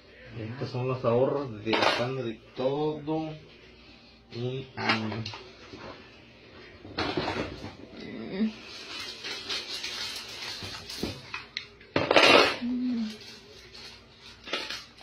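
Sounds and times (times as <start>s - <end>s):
paper bills rustling: 8.5s - 11.5s.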